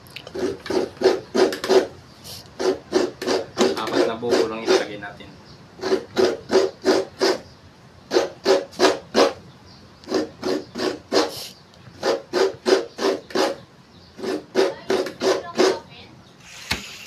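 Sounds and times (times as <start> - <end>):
coconut scraped on grater: 0.3 - 5.0, 5.8 - 7.4, 14.2 - 15.8.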